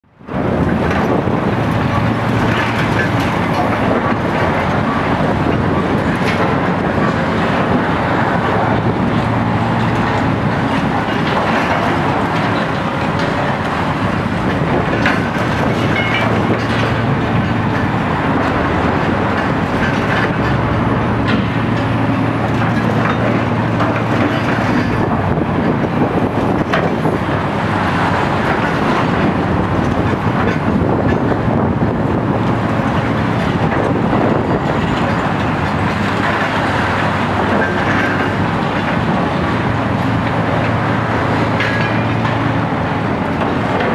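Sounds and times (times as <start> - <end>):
excavators running: 0.0 - 43.9
concrete clanks and crunches: 0.8 - 27.4, 32.7 - 42.6.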